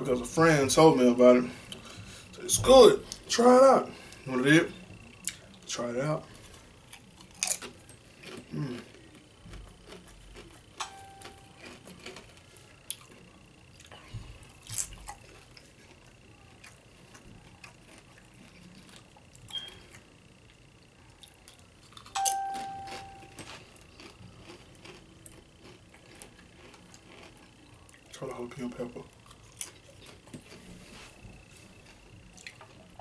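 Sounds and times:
tortilla chips crunching: 6.3 - 32.9
pitched ding: 22.2 - 23.4.

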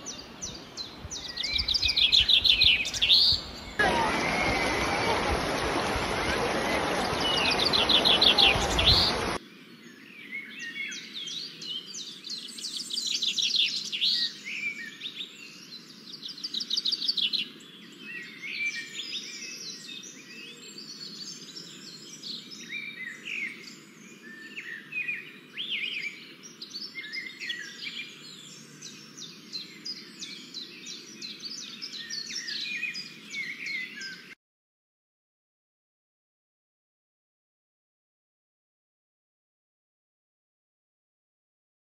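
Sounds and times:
small birds chirping and trilling: 0.0 - 34.4
rushing river water: 3.5 - 9.4.

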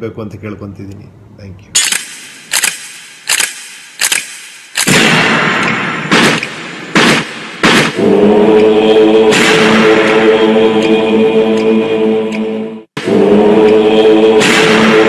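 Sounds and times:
gunshot-like bangs: 1.8 - 8.1, 9.3 - 10.2, 14.4 - 15.0.

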